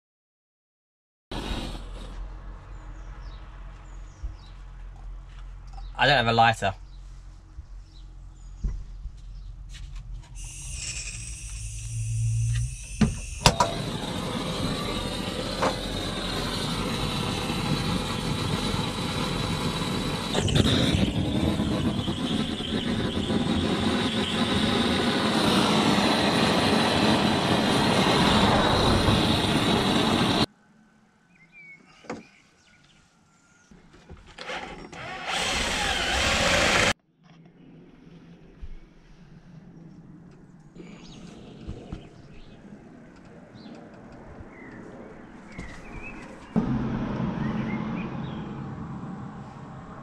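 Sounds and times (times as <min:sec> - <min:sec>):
cordless drill running: 0:10.4 - 0:30.4, 0:34.4 - 0:37.0
gas blowlamp flame burning: 0:10.4 - 0:30.5.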